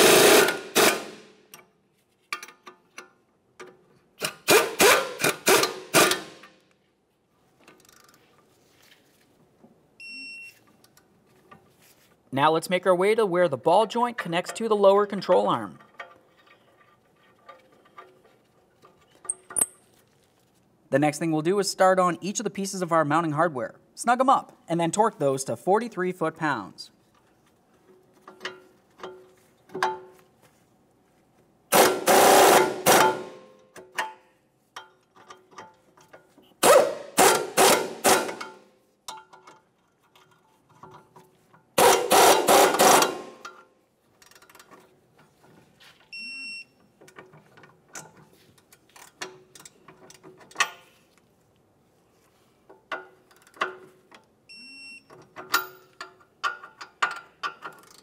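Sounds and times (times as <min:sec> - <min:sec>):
power ratchet running: 0:31.8 - 0:33.2, 0:41.8 - 0:43.3.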